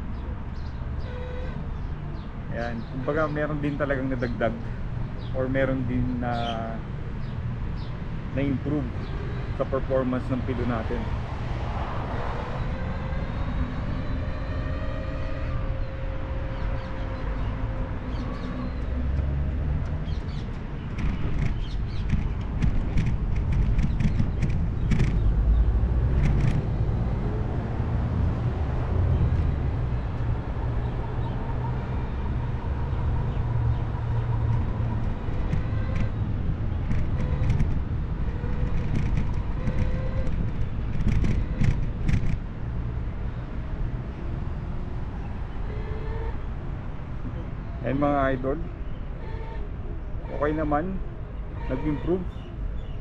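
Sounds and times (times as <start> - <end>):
wind and road noise: 0.0 - 53.0
sharp knocks and rattles: 19.7 - 26.8, 33.7 - 42.6.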